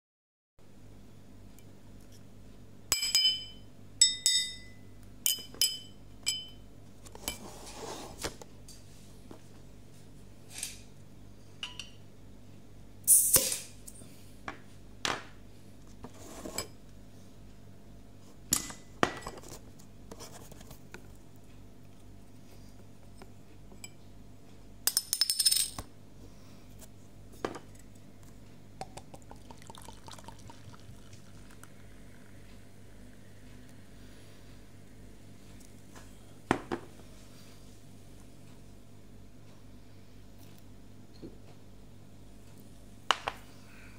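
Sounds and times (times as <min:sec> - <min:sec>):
beer pouring and fizzing: 0:28.9 - 0:33.7.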